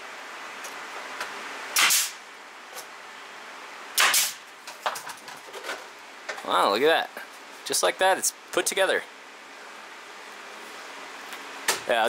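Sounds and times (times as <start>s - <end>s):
nail gun shots with air hiss: 1.7s - 2.2s, 4.0s - 4.5s.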